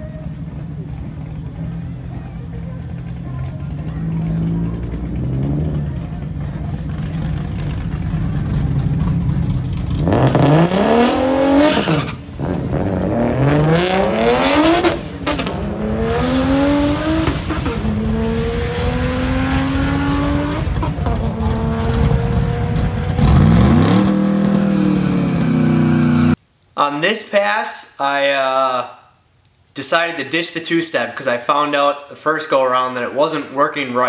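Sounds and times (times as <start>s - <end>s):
car engine accelerating: 0.0s - 26.4s
engine revving: 1.4s - 26.4s.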